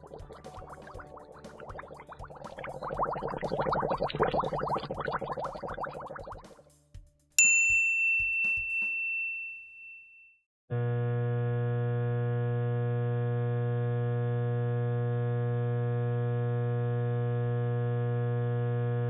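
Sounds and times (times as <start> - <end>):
electrical hum-buzz: 10.7 - 19.0.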